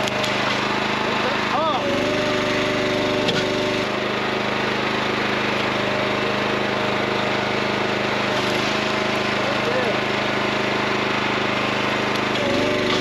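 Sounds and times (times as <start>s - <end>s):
gas engine running: 0.0s - 13.0s
wood splitting crack: 12.1s - 13.0s.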